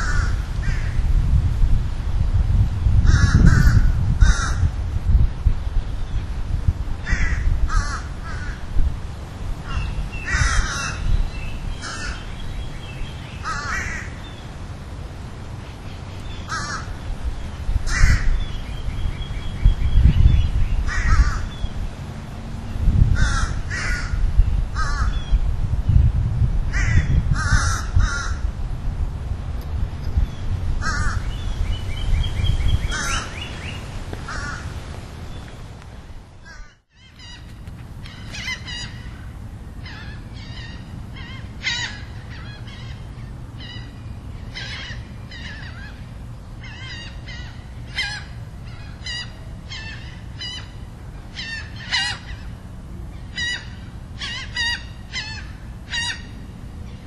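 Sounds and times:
steady low rumble: 0:00.0 - 0:57.0
harsh short bird calls: 0:09.6 - 0:14.5, 0:30.8 - 0:35.6.

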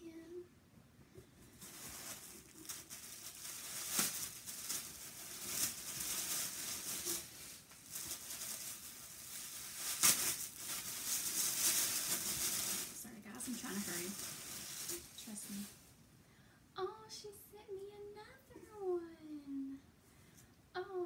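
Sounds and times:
tissue paper rustling: 0:01.5 - 0:15.9.

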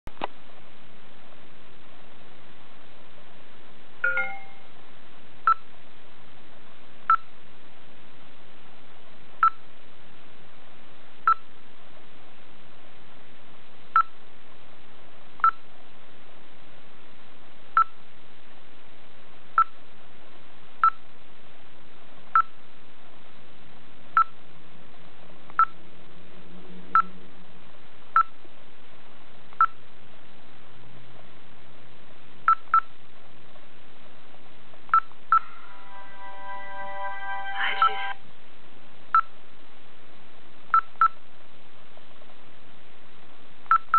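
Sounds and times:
short electronic beeps: 0:04.0 - 0:04.7, 0:27.0 - 0:27.2, 0:34.9 - 0:38.2.

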